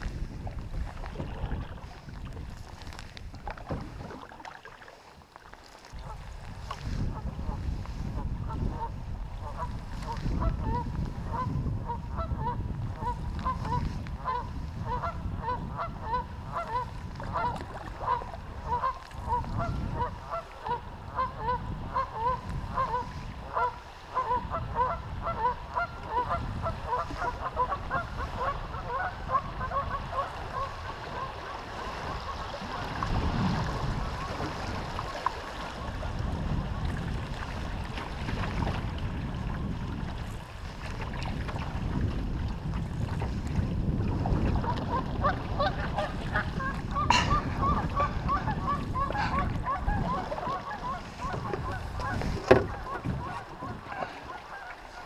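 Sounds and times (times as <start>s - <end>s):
wind rumble on microphone: 0.0s - 4.5s, 5.9s - 55.0s
water rushing: 0.6s - 6.2s
geese honking: 45.6s - 52.2s, 52.8s - 55.0s.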